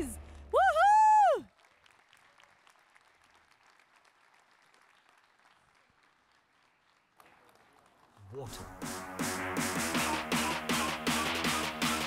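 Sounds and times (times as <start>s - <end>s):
faint audience applause: 0.8s - 8.7s.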